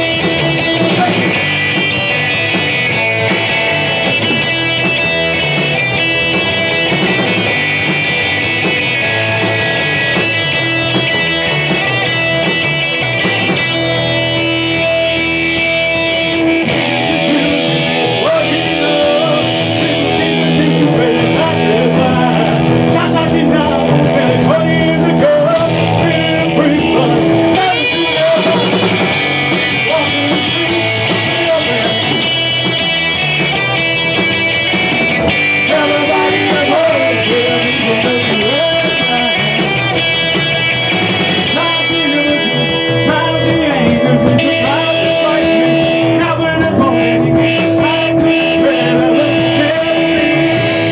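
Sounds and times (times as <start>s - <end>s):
live rock band playing: 0.0s - 50.9s
man singing into microphone: 0.6s - 1.4s, 17.0s - 32.3s, 35.6s - 39.8s, 41.5s - 50.9s.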